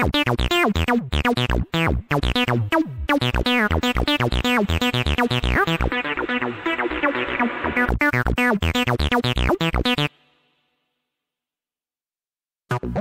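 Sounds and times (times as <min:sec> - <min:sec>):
acid bass synthesizer pattern: 0:00.0 - 0:10.1, 0:12.7 - 0:13.0.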